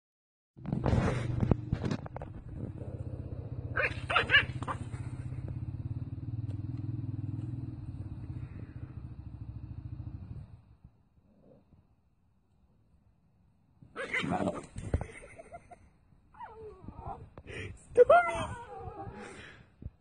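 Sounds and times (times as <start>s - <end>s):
low rumbling growl: 0.6s - 11.9s
small dog barking: 3.7s - 4.9s.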